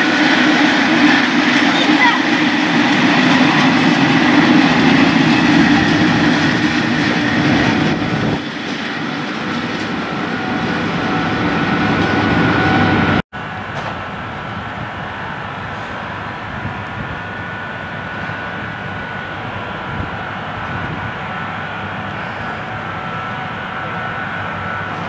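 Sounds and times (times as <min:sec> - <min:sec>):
train wheels clattering on rails: 0:00.0 - 0:14.8.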